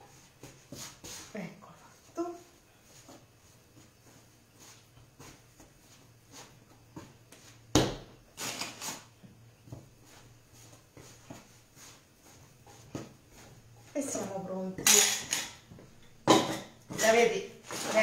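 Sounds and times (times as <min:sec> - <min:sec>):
dough kneaded by hand: 0:00.0 - 0:18.0
scraping rustles: 0:16.9 - 0:18.0.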